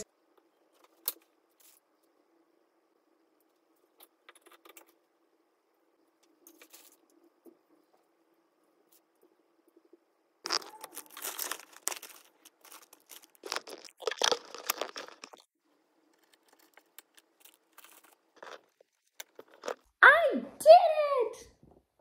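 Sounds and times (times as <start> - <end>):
packaging rustling: 10.5 - 15.5.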